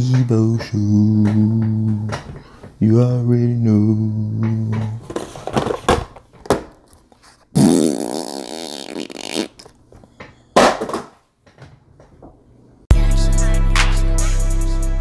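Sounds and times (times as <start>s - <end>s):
person blowing raspberry: 7.6s - 9.6s
music: 12.9s - 15.0s.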